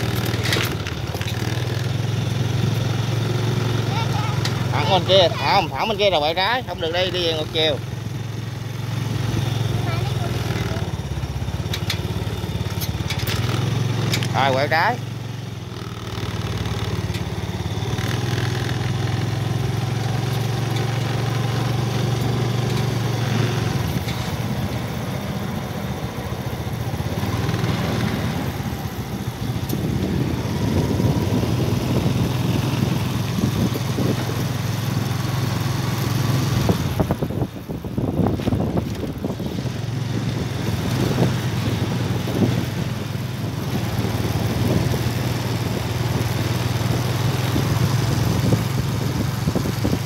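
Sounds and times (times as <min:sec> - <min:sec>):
road noise while riding: 0:00.0 - 0:50.0.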